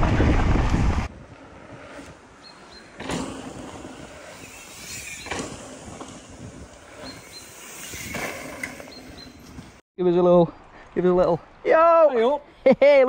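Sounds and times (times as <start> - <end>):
wind buffeting microphone: 0.0 - 9.8.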